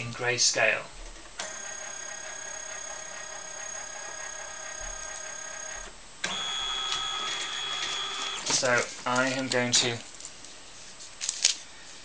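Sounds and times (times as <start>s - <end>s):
scanner motor whining: 1.4s - 8.5s.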